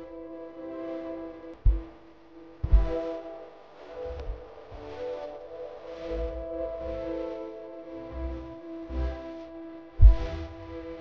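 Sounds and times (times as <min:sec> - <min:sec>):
sustained chord music: 0:00.0 - 0:11.0
deep bass hit: 0:10.0 - 0:10.3.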